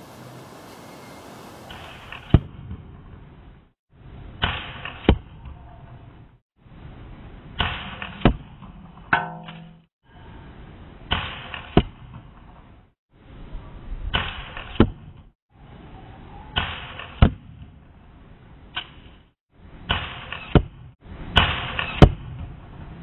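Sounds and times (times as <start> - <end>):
crossbow shot whoosh: 4.4 - 5.4, 7.6 - 8.6, 14.1 - 15.2, 19.9 - 22.4
ringing twang: 9.1 - 9.9.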